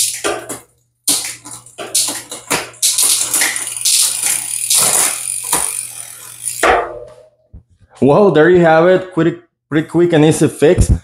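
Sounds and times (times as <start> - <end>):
bike chain clicking whir: 0.0 - 7.2.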